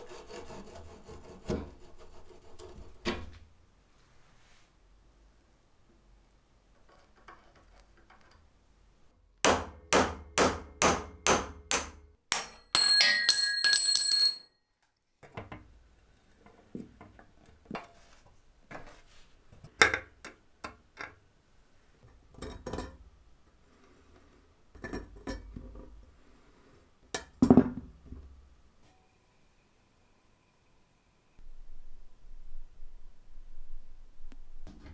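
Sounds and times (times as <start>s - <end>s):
high ringing squeal: 28.9s - 31.4s.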